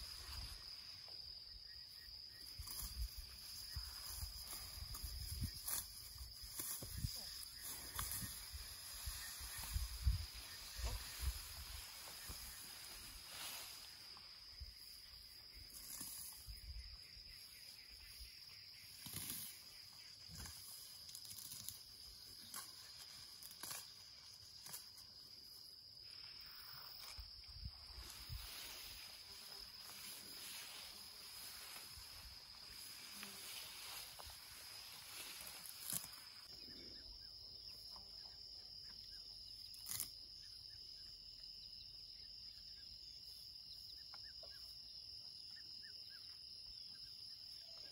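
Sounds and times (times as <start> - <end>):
high insect trill: 0.0 - 47.9
grass rustling and snapping: 2.4 - 14.2, 15.7 - 16.4, 18.8 - 25.2, 26.9 - 36.5, 39.7 - 40.1.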